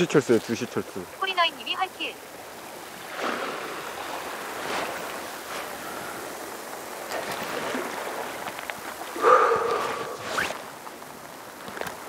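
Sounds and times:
sea water washing against rocks: 0.0 - 12.0.

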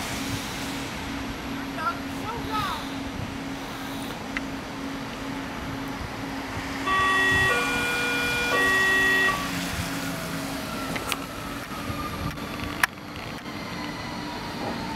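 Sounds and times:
electric braking whine: 2.8 - 12.8
two-tone train horn: 6.8 - 9.9.

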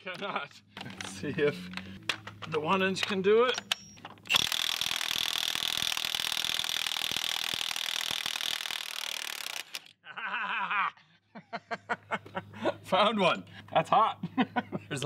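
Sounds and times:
impact wrench hammering: 3.0 - 9.8.

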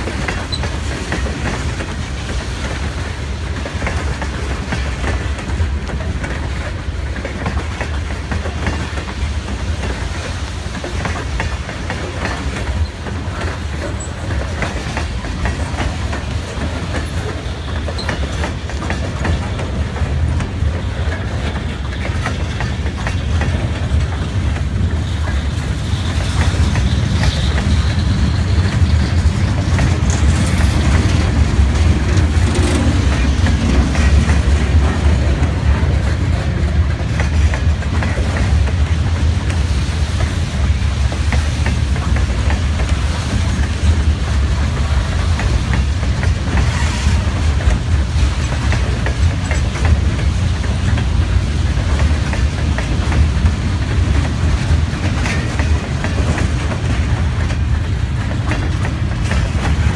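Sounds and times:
freight train rumbling past: 0.0 - 59.9
wheels clacking over rail joints: 0.0 - 59.9.

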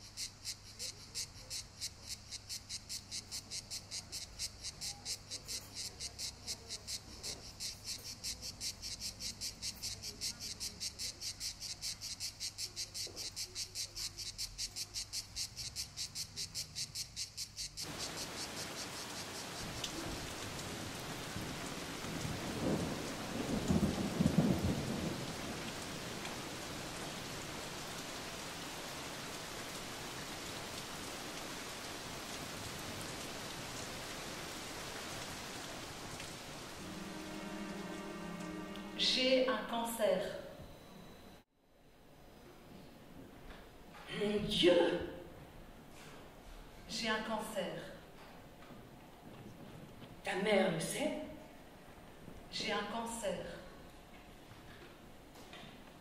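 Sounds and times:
heavy rain: 17.8 - 39.3
thunder rumbling: 17.9 - 27.5.

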